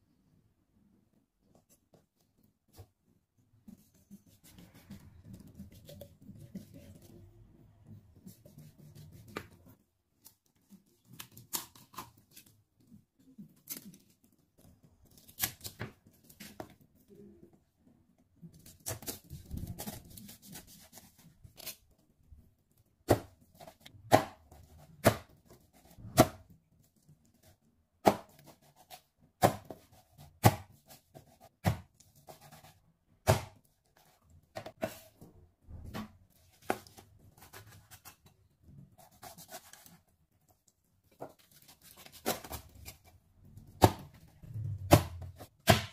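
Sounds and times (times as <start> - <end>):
cleaver chopping on wooden board: 44.9 - 45.9.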